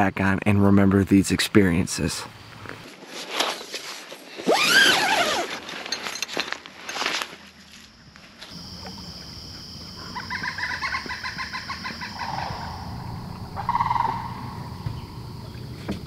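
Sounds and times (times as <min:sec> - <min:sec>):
birds calling: 0:09.9 - 0:16.0.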